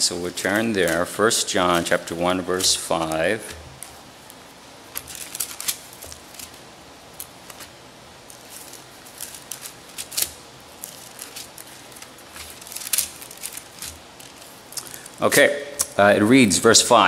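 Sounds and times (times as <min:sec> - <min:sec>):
thin pages rustling: 0:00.2 - 0:15.2.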